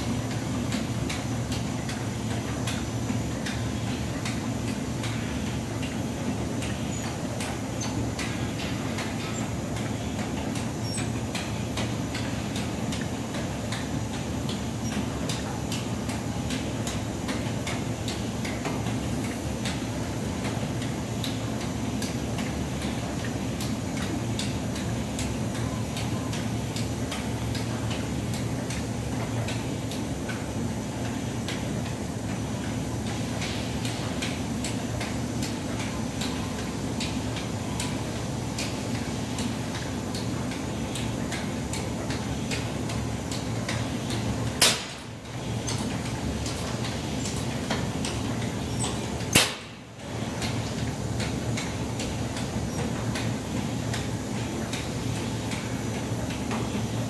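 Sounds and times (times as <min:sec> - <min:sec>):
bottle filling machine humming: 0:22.1 - 0:57.0.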